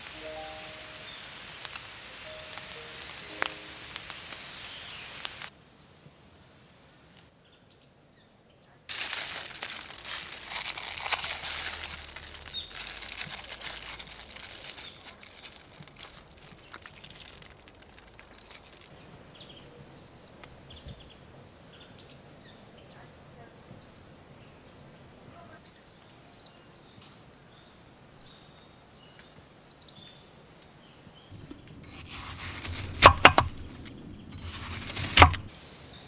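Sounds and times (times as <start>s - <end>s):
close dense crackling and rustling: 0.0s - 5.5s, 8.9s - 19.1s, 31.3s - 35.5s
rain falling: 0.0s - 5.5s, 8.9s - 19.2s, 31.3s - 35.6s
small birds chirping: 0.0s - 5.5s, 7.4s - 25.0s.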